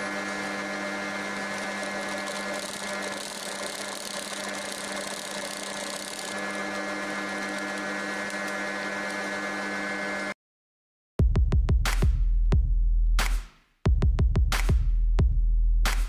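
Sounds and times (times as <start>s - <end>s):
sewing machine running: 0.0s - 10.4s.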